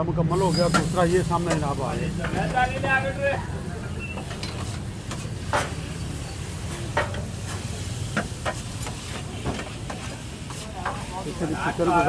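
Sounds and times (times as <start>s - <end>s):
meat sizzling on griddle: 0.3s - 12.0s
metal utensils clacking: 0.4s - 3.0s.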